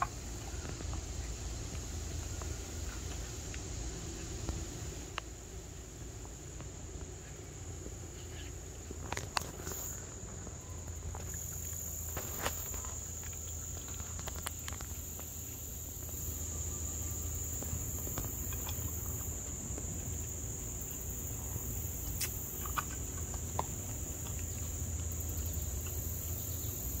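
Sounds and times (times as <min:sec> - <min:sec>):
insects chirping: 0:00.0 - 0:27.0
clicks from animal eating from bowl: 0:11.1 - 0:15.3, 0:22.0 - 0:26.0.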